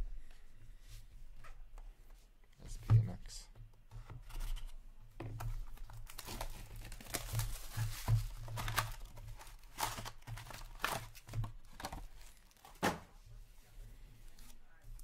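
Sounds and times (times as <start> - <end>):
cardboard packaging crinkling and tearing: 5.6 - 12.8.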